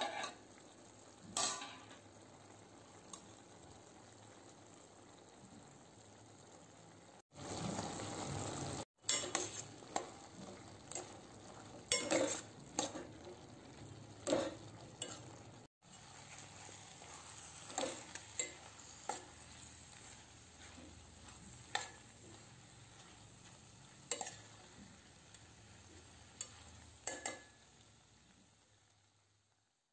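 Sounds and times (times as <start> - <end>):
spoon scraping steel pot: 0.0 - 0.4, 9.1 - 10.1, 11.9 - 13.0
low sizzle: 0.0 - 29.9.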